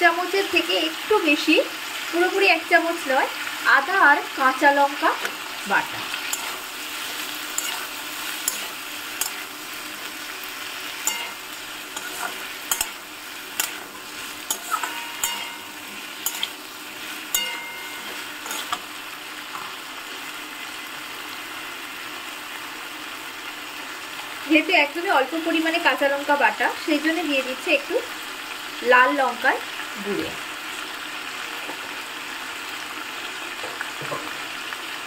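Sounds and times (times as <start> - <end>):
vegetables sizzling in a pan: 0.0 - 35.0
utensil clicking and scraping pan: 6.2 - 9.5, 11.0 - 18.8.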